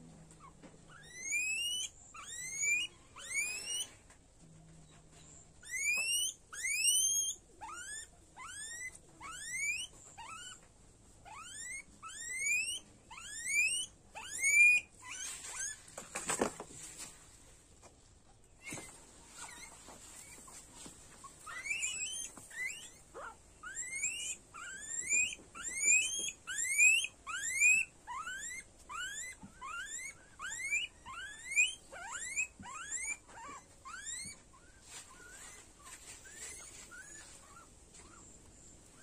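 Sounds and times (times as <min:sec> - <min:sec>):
guinea pig squealing: 0:00.4 - 0:04.0, 0:05.3 - 0:15.8, 0:18.6 - 0:39.0
scuffling noise: 0:15.2 - 0:17.6, 0:18.6 - 0:22.6, 0:34.2 - 0:38.5.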